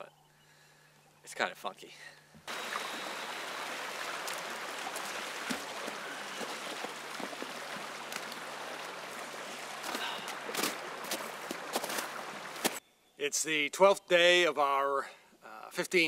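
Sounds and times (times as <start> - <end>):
small creek running: 2.0 - 12.8
footsteps through dry grass: 3.8 - 12.8.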